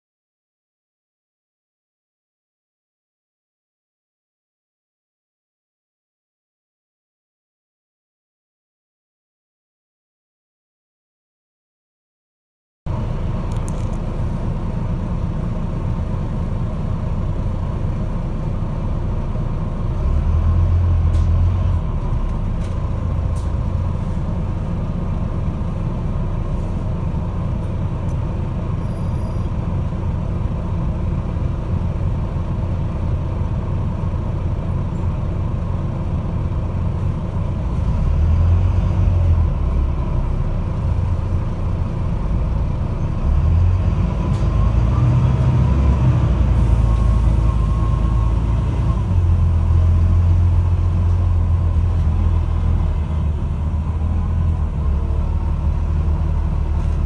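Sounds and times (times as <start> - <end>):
bus diesel engine rumble: 12.9 - 57.0.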